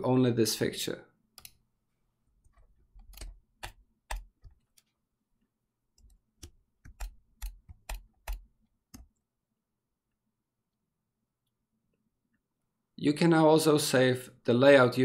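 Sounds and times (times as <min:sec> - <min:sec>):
computer mouse clicks: 0:01.4 - 0:01.6, 0:02.4 - 0:04.9, 0:06.0 - 0:09.2.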